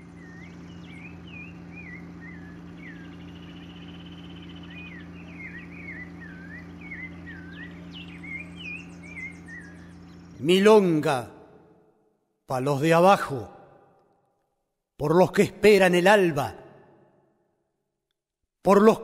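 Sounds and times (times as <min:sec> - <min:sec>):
birds chirping and whistling: 0:00.0 - 0:11.8
buzzy bird trill: 0:00.0 - 0:12.0
low steady hum: 0:00.0 - 0:19.0.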